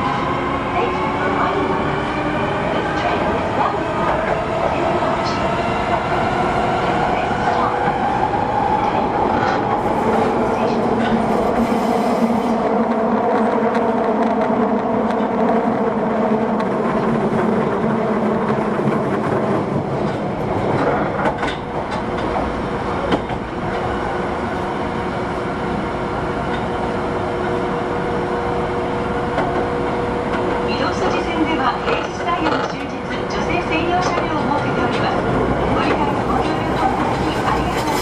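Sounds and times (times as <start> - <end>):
subway train inverter whine: 0.0 - 38.0
wheel and track noise: 35.7 - 38.0.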